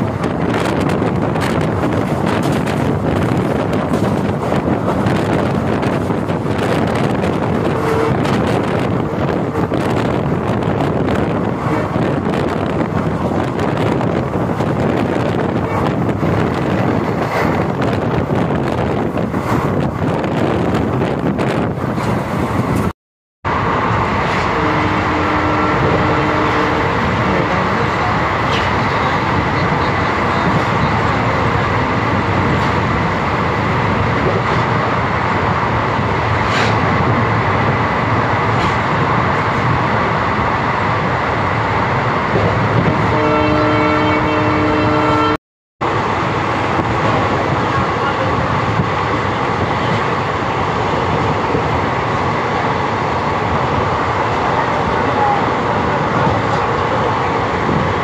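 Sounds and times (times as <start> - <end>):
train wheels rumbling and rattling: 0.0 - 22.9, 23.5 - 44.8, 45.8 - 58.0
train horn: 7.6 - 8.5, 24.2 - 27.8, 42.9 - 45.4.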